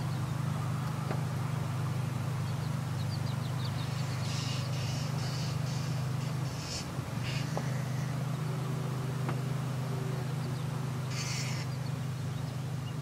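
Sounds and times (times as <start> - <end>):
distant propeller aircraft drone: 0.0 - 13.0
high rasping chirp: 2.3 - 8.8, 9.6 - 13.0.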